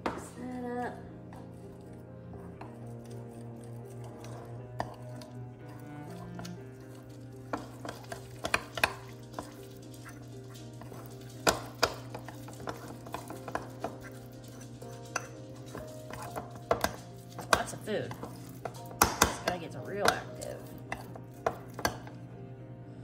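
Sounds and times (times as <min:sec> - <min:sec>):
fork clinking against bowl: 0:06.4 - 0:22.2.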